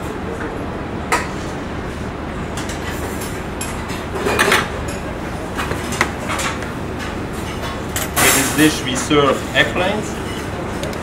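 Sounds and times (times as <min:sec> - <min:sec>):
kitchen background noise: 0:02.5 - 0:11.0.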